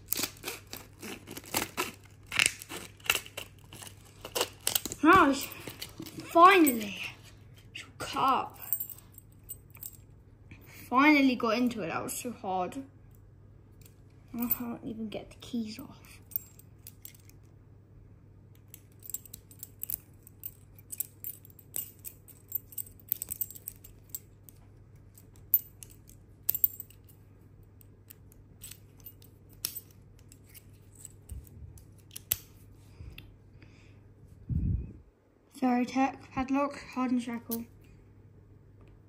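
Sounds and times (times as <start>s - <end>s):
keys clicking and jingling: 8.6s - 10.0s, 16.2s - 17.5s, 18.7s - 27.2s.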